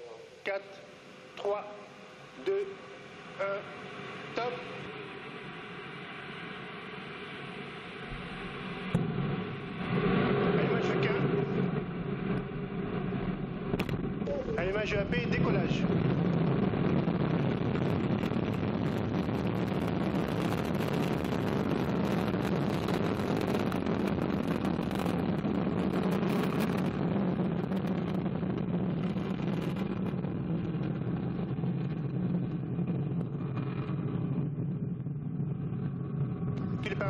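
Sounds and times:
rocket engine rumble: 0.0s - 37.0s.

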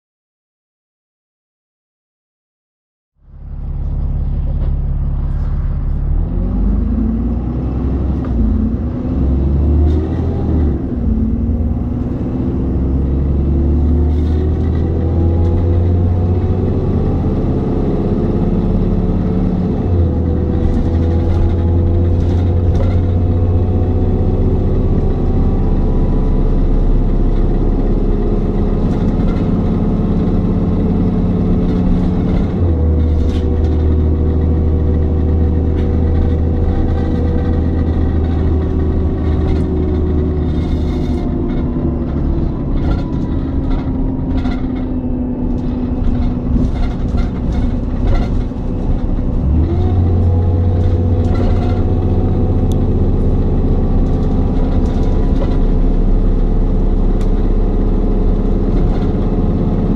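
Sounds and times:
bus diesel engine droning: 3.2s - 59.9s
bodywork rattles: 20.0s - 24.0s, 28.2s - 59.9s.

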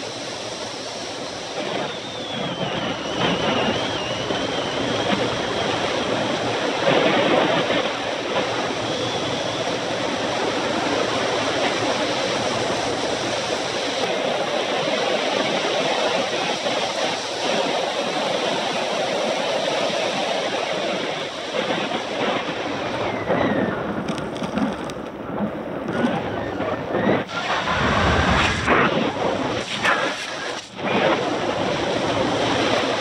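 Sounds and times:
wind buffeting microphone: 0.0s - 33.0s
tyre roar on asphalt: 21.5s - 33.0s.

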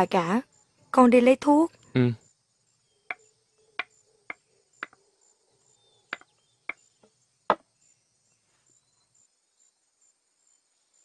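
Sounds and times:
crickets chirping: 0.0s - 11.0s.

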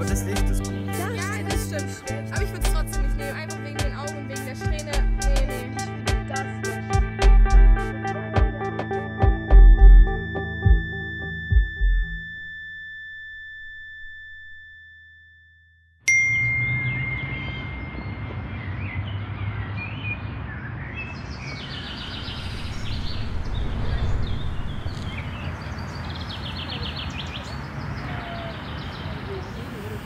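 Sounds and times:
electronic ding: 16.1s - 17.8s
birds chirping: 16.7s - 30.0s
steady low rumble: 21.8s - 26.3s.

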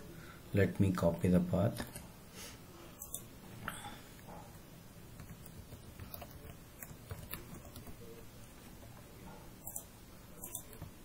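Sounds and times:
keyboard typing: 3.0s - 3.3s, 5.1s - 8.2s, 9.6s - 11.0s.

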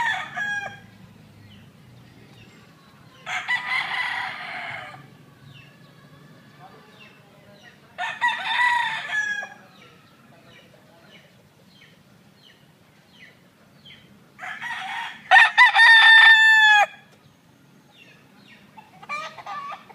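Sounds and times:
rooster crowing: 0.0s - 0.9s, 3.2s - 5.2s, 8.0s - 9.9s, 14.4s - 17.1s.

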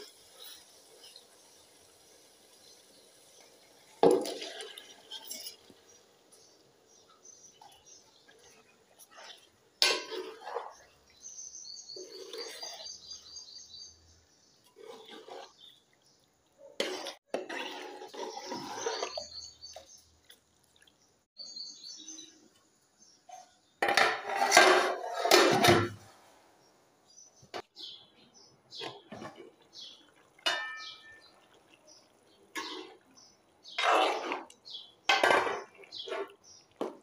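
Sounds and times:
metal ladle scraping a pot: 2.9s - 13.9s, 14.5s - 16.2s, 16.8s - 19.8s, 23.8s - 26.1s, 28.8s - 31.3s, 32.5s - 37.0s.

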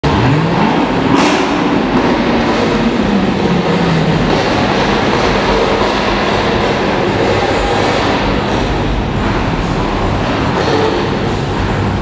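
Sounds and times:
continuous rushing noise: 0.0s - 12.0s.

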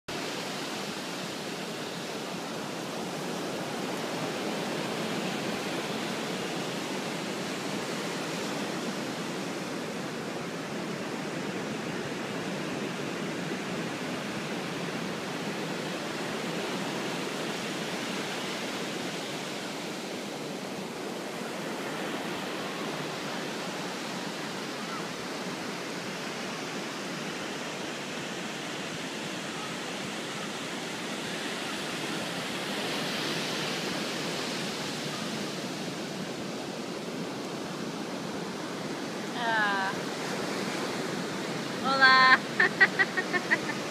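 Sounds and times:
waves washing on sand: 0.1s - 43.9s.

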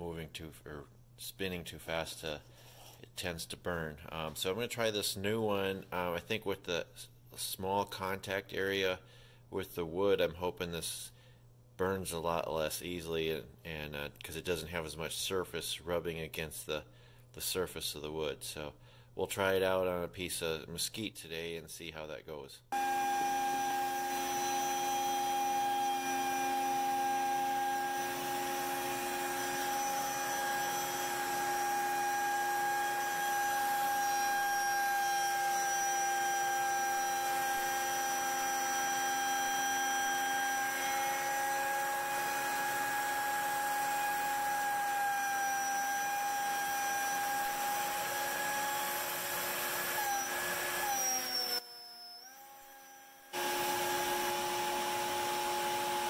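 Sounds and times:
dust extraction: 22.8s - 51.5s, 53.3s - 56.0s
router spindle high whine: 22.8s - 56.0s.

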